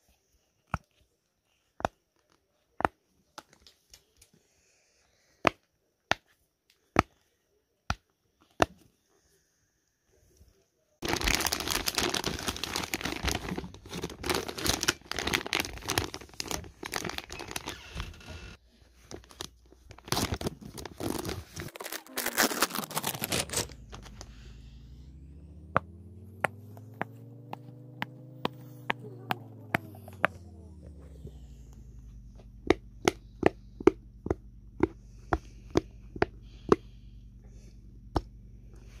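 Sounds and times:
packaging tearing and crinkling: 0:11.0 - 0:24.2
low hum: 0:21.9 - 0:39.0.

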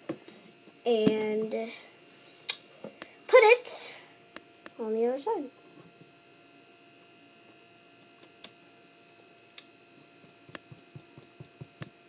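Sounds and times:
faint steady hum: 0:00.0 - 0:12.0
fingertips tapping on paper: 0:10.5 - 0:11.9.

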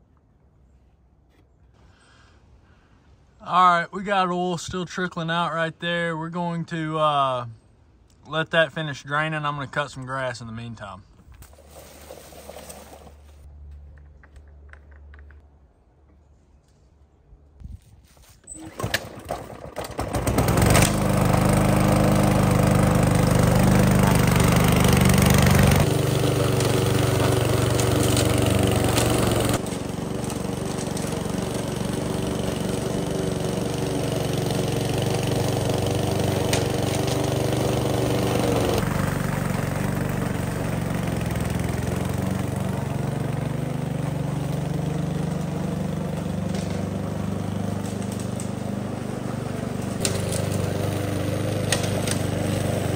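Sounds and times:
lawn mower engine: 0:18.0 - 0:52.9.

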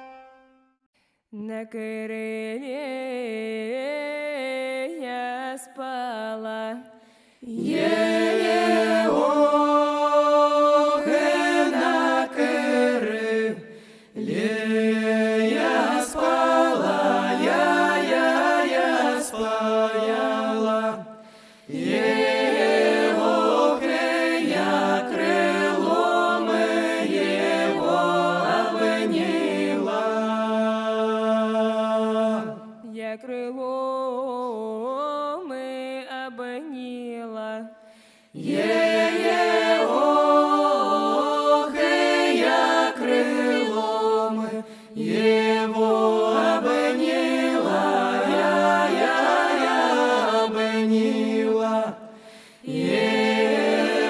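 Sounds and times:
group singing in harmony: 0:07.4 - 0:33.0, 0:38.4 - 0:54.0.

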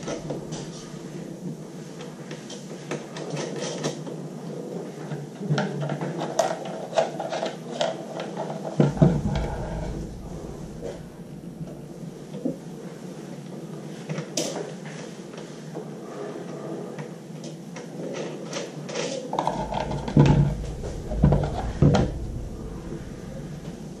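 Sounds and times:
heavy thumps: 0:08.9 - 0:12.1, 0:19.5 - 0:24.0.

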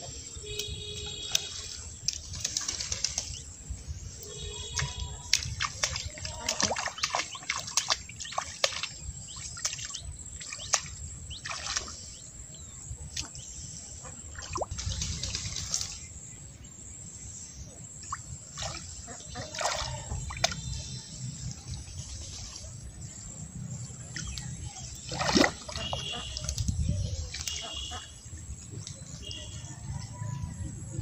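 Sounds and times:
feet squelching in mud: 0:04.6 - 0:12.0, 0:18.5 - 0:21.0, 0:24.1 - 0:28.2.

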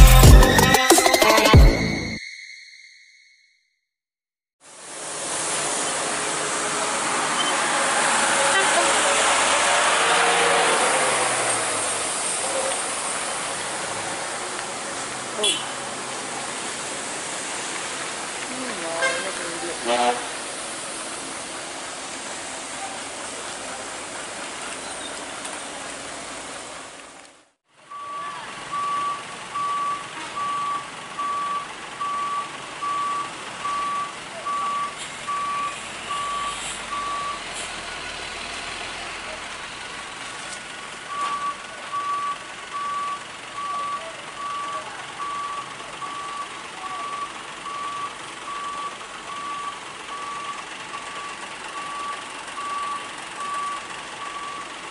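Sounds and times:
steady road noise: 0:04.6 - 0:54.9
truck reversing alarm beeping: 0:05.2 - 0:14.4, 0:27.8 - 0:39.9, 0:40.9 - 0:54.9.

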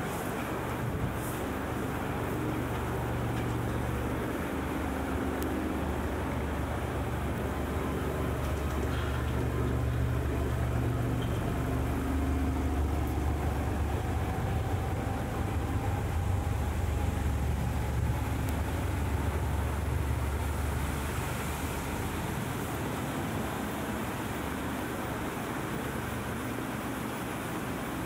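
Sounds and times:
vehicle engine rumble: 0:00.0 - 0:27.4
city traffic noise: 0:00.0 - 0:28.0.

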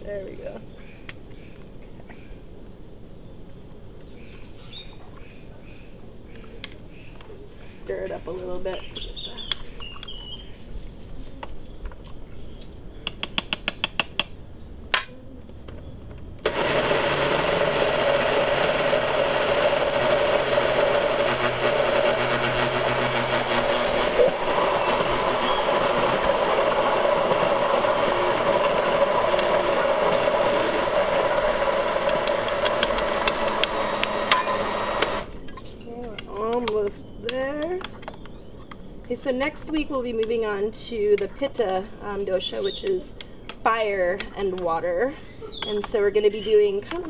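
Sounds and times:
blender running: 0:16.5 - 0:35.3.

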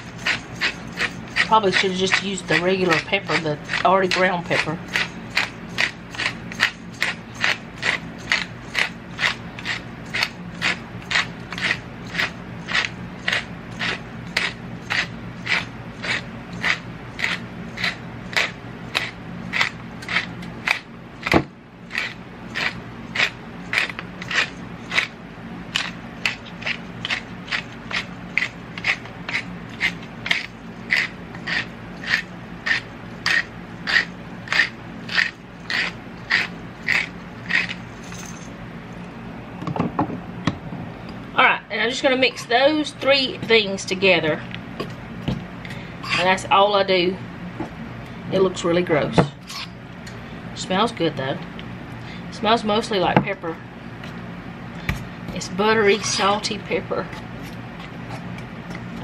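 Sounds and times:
pepper mill grinding: 0:00.0 - 0:38.5, 0:41.7 - 0:44.2, 0:46.0 - 0:46.6, 0:54.8 - 0:59.0.

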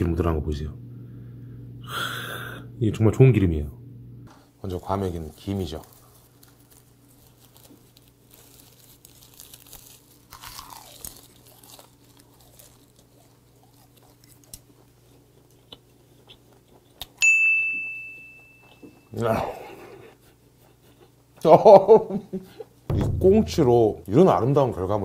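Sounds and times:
seaweed sheet crinkling: 0:04.7 - 0:15.5
crunching and chewing: 0:05.1 - 0:17.2, 0:18.6 - 0:21.5
bright ding: 0:17.2 - 0:19.2.

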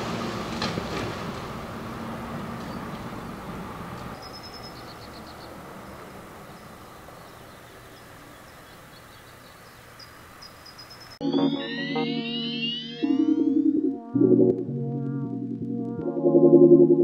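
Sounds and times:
freeway traffic rumble: 0:00.0 - 0:11.2
bird chirping: 0:04.2 - 0:13.8.

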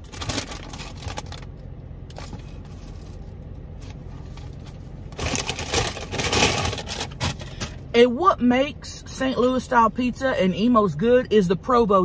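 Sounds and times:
foil and paper crinkling: 0:00.0 - 0:01.5, 0:05.2 - 0:07.6
car engine idling: 0:00.0 - 0:12.0.

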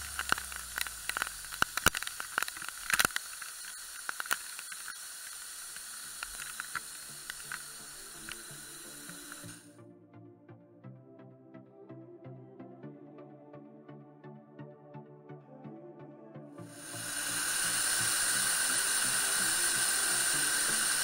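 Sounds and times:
sharp clicks and knocks: 0:00.0 - 0:09.6
background music: 0:06.8 - 0:21.0
waterfall rushing: 0:16.8 - 0:21.0.

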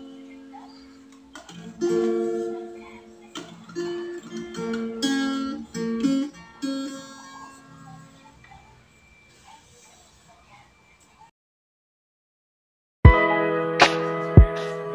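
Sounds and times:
acoustic guitar plucking and strumming: 0:00.0 - 0:08.5.

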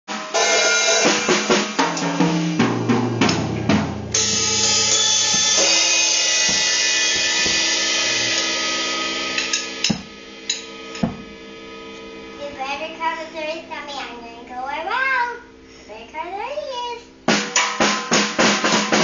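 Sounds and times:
drum kit played unsteadily: 0:00.0 - 0:13.8, 0:17.0 - 0:19.0
cymbal ringing: 0:00.2 - 0:12.5.

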